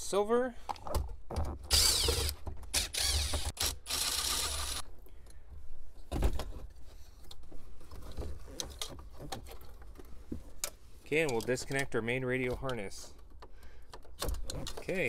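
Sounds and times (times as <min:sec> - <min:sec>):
cordless drill whirring: 0:01.7 - 0:04.8.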